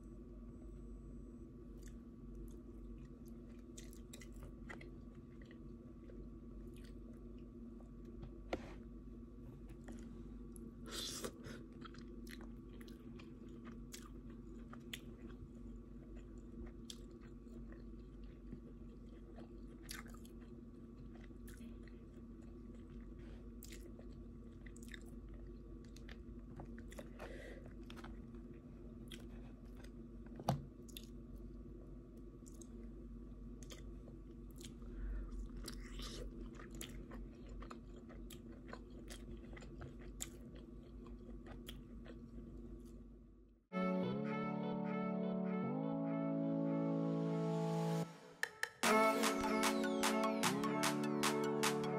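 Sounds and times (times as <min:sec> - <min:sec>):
low steady hum: 0:00.0 - 0:51.9
person chewing food: 0:01.8 - 0:07.5, 0:09.7 - 0:31.6, 0:32.4 - 0:32.9, 0:33.6 - 0:43.0.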